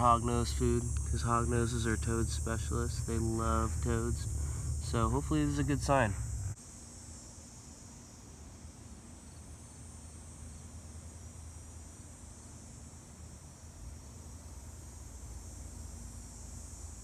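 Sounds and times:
low rumble: 0:00.0 - 0:06.6
insects trilling: 0:00.0 - 0:17.0.

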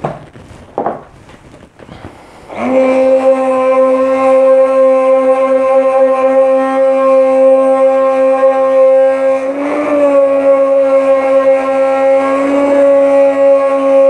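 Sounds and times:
immersion blender motor whining: 0:05.9 - 0:14.0.

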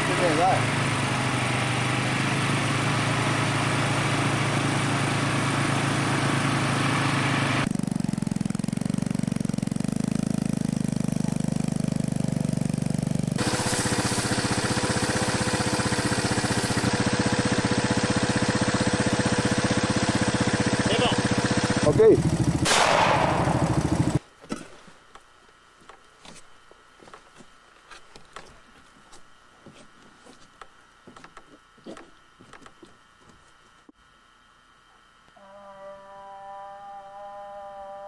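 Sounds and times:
engine droning: 0:00.0 - 0:24.2.

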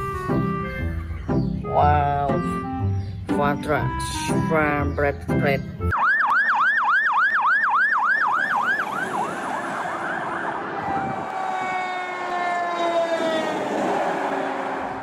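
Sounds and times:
fire engine siren: 0:05.9 - 0:15.0.

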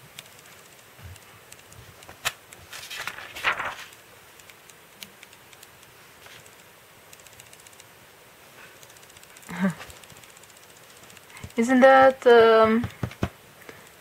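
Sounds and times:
paper tick: 0:00.2 - 0:07.9
paper rustling: 0:02.1 - 0:04.0.

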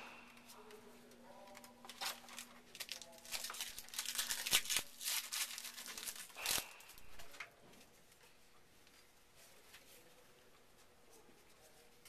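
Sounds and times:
wrapper tearing and crinkling: 0:01.9 - 0:07.4.

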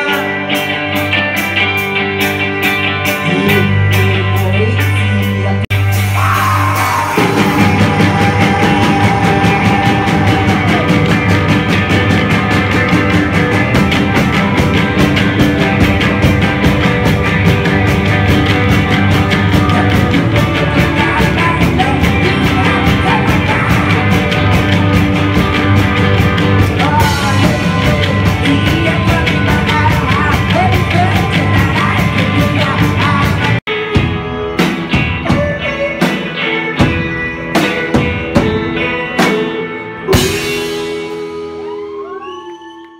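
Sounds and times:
person singing: 0:00.0 - 0:01.2, 0:02.7 - 0:42.9
rock band playing live: 0:00.0 - 0:42.6.

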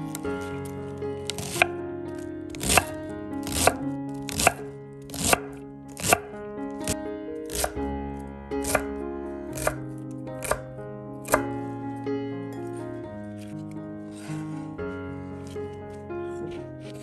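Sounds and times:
knife cutting cabbage on board: 0:00.0 - 0:01.8, 0:02.5 - 0:07.8, 0:08.6 - 0:11.6, 0:16.3 - 0:17.0
background music: 0:00.0 - 0:17.0.

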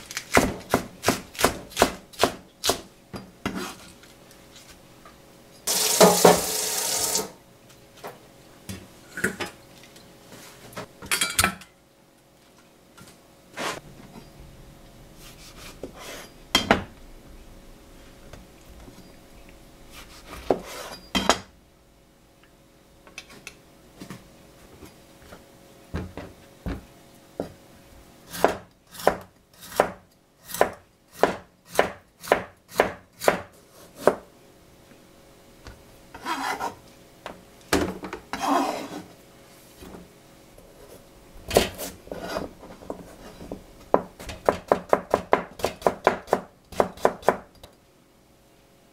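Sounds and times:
knife chopping on cutting board: 0:00.3 - 0:02.9, 0:28.3 - 0:34.2, 0:43.9 - 0:47.5.

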